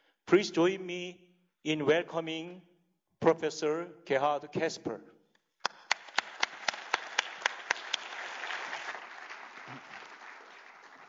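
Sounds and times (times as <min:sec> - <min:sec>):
audience applauding: 0:05.6 - 0:11.0
sharp close claps: 0:05.6 - 0:11.0.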